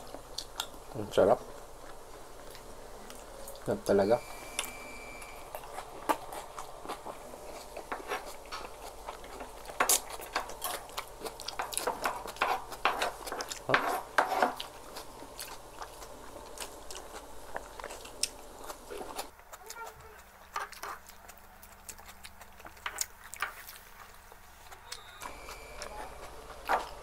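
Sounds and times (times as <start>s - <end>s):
people chewing food: 0.0s - 27.0s
cutlery scraping on food: 5.6s - 14.7s.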